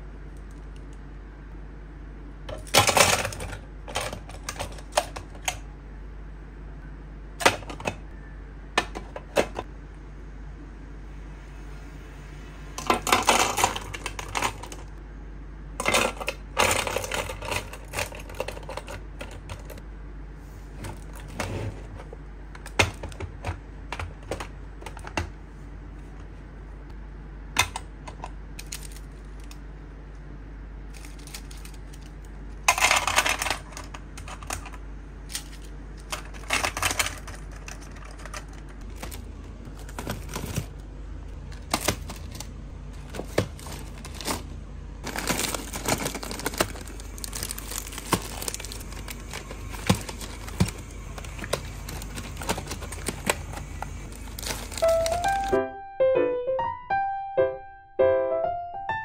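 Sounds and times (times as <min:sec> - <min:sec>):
low steady hum: 0:00.0 - 0:59.0
plastic pens clattering: 0:02.5 - 0:05.6, 0:12.8 - 0:14.9, 0:15.8 - 0:19.8, 0:27.6 - 0:29.6, 0:30.9 - 0:40.8, 0:41.5 - 0:55.5.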